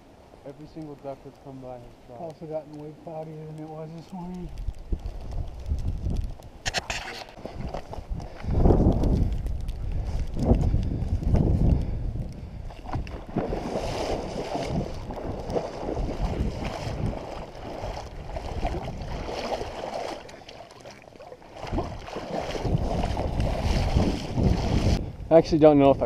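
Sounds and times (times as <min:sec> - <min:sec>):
person wading through water: 0:07.0 - 0:25.0.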